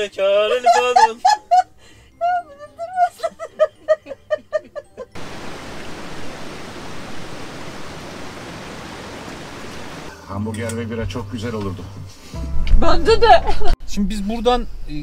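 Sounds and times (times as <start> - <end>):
steady rushing noise: 5.2 - 10.1.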